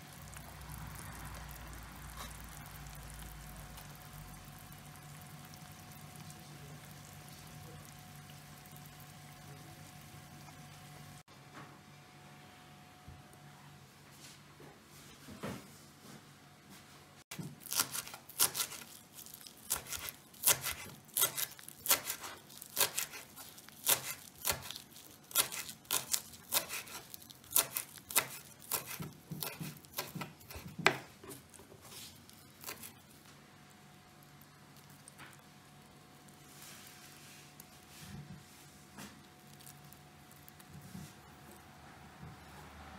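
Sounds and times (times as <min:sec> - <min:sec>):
knife chopping on wooden board: 0:19.7 - 0:24.8, 0:25.4 - 0:31.4.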